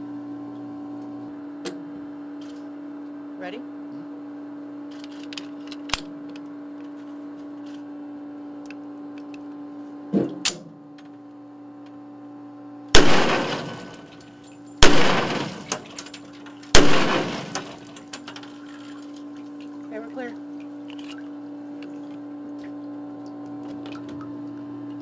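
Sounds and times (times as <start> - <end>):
steady hum: 0.0 - 25.0
pistol shots with ringing tail: 12.9 - 14.2, 14.8 - 16.0, 16.7 - 18.0.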